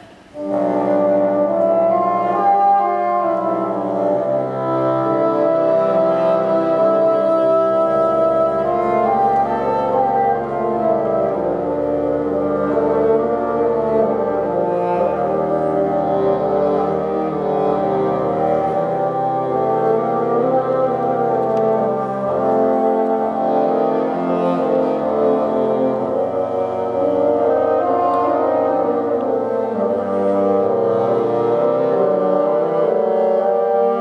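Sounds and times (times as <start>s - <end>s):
bassoon quartet playing: 0.0s - 34.0s.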